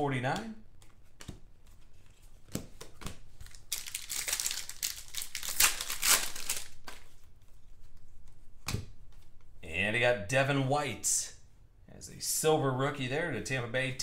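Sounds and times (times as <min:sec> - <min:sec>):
foil wrapper tearing and crinkling: 0:03.4 - 0:07.0.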